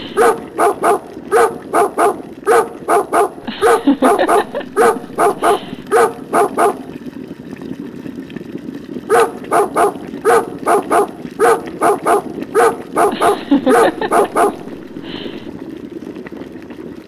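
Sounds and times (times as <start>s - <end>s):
dog barking: 0.0s - 6.9s, 9.1s - 15.1s.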